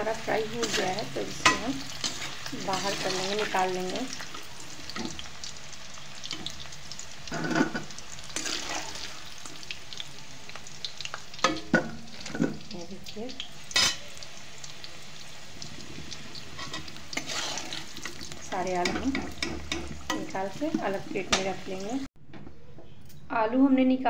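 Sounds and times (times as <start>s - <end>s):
potatoes sizzling in hot oil: 0.0s - 22.1s
metal spoon clanking on pan: 0.6s - 2.4s, 7.3s - 8.6s, 11.3s - 12.7s, 13.7s - 14.1s, 18.1s - 21.6s.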